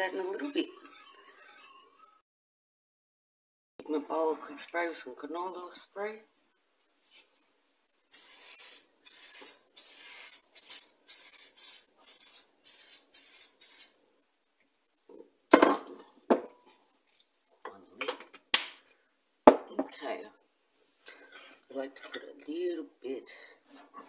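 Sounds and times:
spray can hissing: 8.1s - 14.0s
glass dish knocking on bench: 19.5s - 19.9s.

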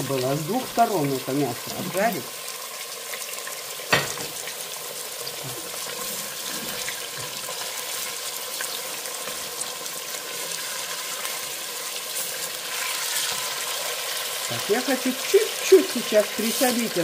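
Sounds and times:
meat sizzling in hot oil: 0.0s - 17.0s
spatula turning meat: 5.2s - 17.0s.

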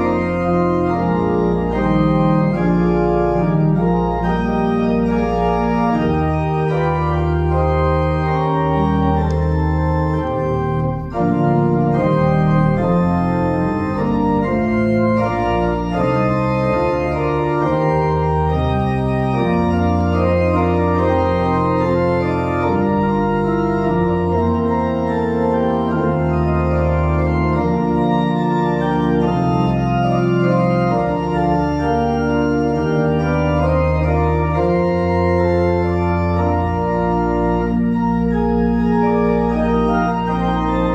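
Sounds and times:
organ playing sustained chords: 0.0s - 40.9s.

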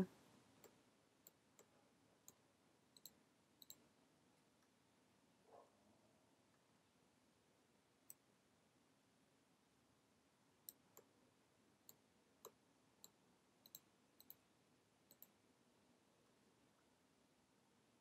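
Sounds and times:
low steady hiss: 0.0s - 18.0s
mouse and keyboard clicks: 3.0s - 3.8s, 11.9s - 14.4s, 15.1s - 15.3s.

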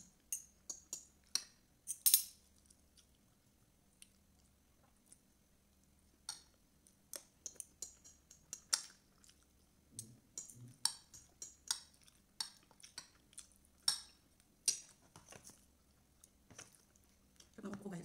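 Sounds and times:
cutlery clinking on a plate: 1.9s - 2.4s
chewing: 2.5s - 5.9s, 6.8s - 17.8s.

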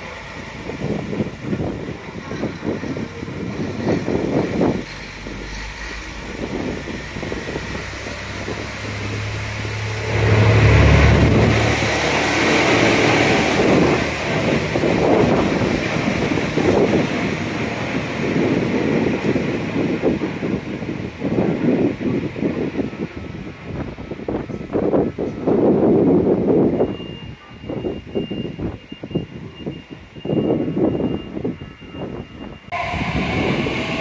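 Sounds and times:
diesel engine drone: 0.0s - 24.7s, 32.6s - 34.0s
wheel and rail noise: 0.0s - 26.4s, 32.4s - 34.0s
wind buffeting microphone: 0.0s - 34.0s.

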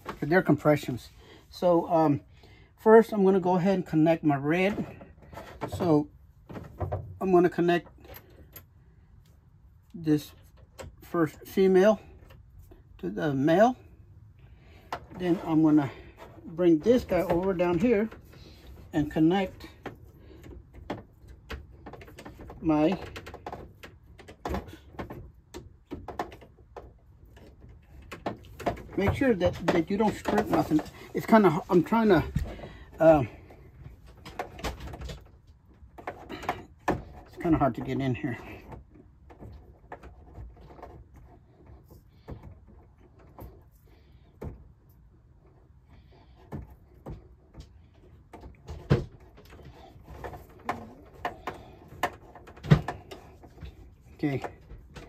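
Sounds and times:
fitting and hoses clicking: 4.6s - 55.0s
hose bumping against cabinet: 46.0s - 55.0s.

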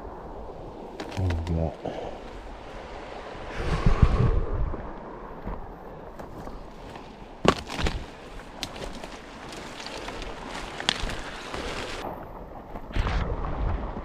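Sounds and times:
twigs cracking: 0.8s - 2.4s, 6.1s - 12.1s
footsteps through scrub: 6.2s - 12.0s.

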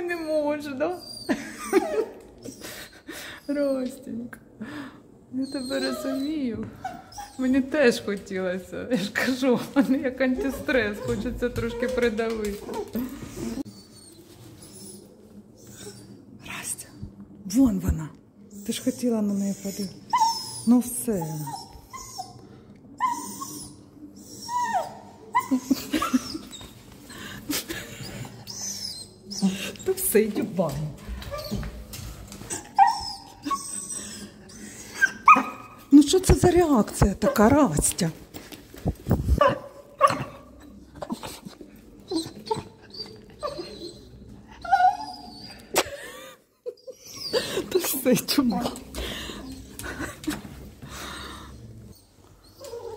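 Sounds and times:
dog whining: 0.0s - 4.0s, 5.4s - 7.8s, 10.3s - 16.3s, 18.5s - 22.4s, 23.0s - 30.2s, 31.0s - 35.9s, 39.3s - 45.9s, 46.6s - 52.9s
dog yipping: 20.1s - 22.4s, 32.5s - 35.8s, 39.4s - 40.5s, 42.1s - 45.6s, 52.5s - 52.9s.

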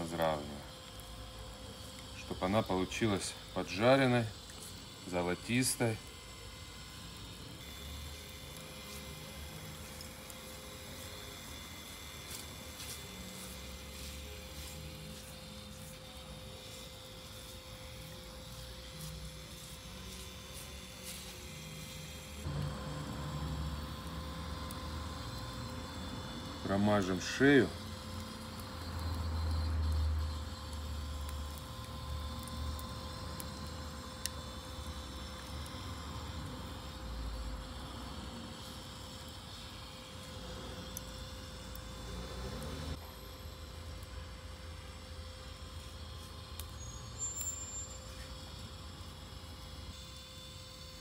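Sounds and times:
faint crackles of coals and meat: 0.0s - 51.0s
steady hum: 0.0s - 51.0s.

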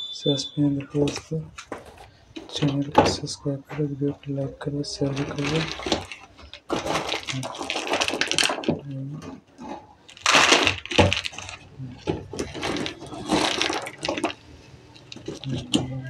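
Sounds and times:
kernels rattling on plastic: 5.0s - 8.8s, 9.6s - 15.7s.

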